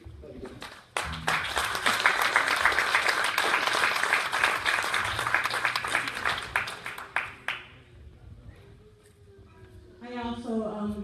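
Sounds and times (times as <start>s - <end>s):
congregation applauding: 0.5s - 7.8s.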